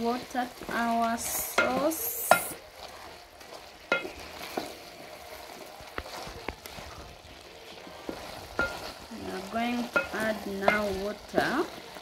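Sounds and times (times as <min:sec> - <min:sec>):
cooking food hissing: 0:00.0 - 0:12.0
wooden spoon stirring pot: 0:00.0 - 0:12.0
spoon knocking against pot: 0:09.9 - 0:11.0.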